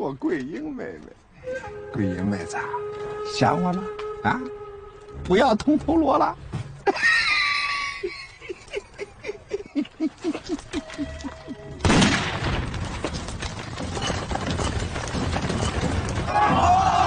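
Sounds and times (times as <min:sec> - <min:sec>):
rifle gunfire: 0:11.8 - 0:12.7.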